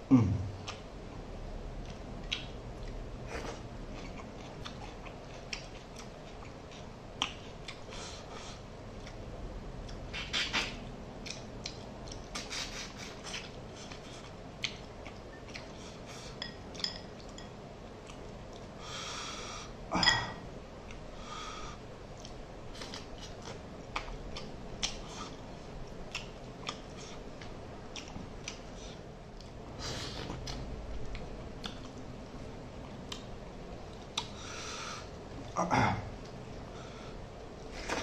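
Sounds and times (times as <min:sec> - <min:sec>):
chewing and mouth clicks: 0:01.8 - 0:08.0, 0:09.8 - 0:18.8, 0:22.1 - 0:29.6, 0:30.2 - 0:32.1, 0:32.8 - 0:34.4.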